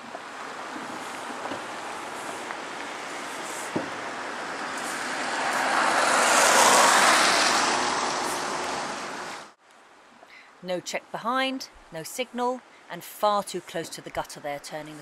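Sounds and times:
tyres hissing on wet road: 0.0 - 9.6.

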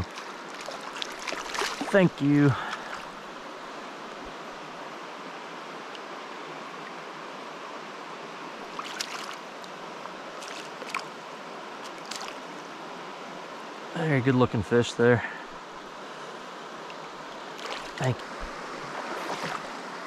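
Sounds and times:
short splashes in water: 0.0 - 3.1, 8.7 - 9.4, 10.4 - 11.1, 11.8 - 12.4, 17.6 - 19.8
river water rushing over rocks: 0.0 - 13.9, 15.4 - 20.0.

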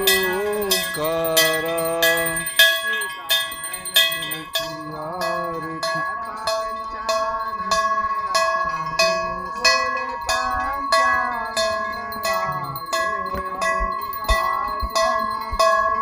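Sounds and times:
brass bells ringing: 0.0 - 16.0.

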